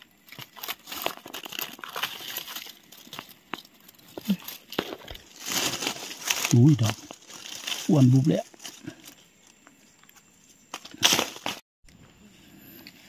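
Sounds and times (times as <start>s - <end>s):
dry leaves rustling and crackling: 0.0s - 9.2s.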